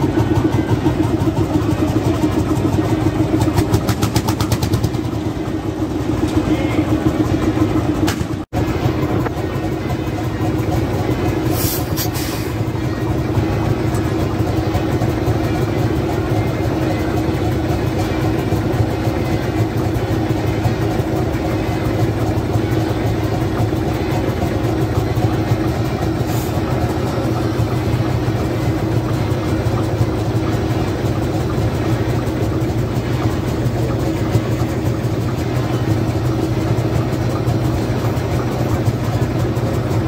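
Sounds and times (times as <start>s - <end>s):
tractor engine idling: 0.0s - 40.0s
short hiss: 11.5s - 12.5s.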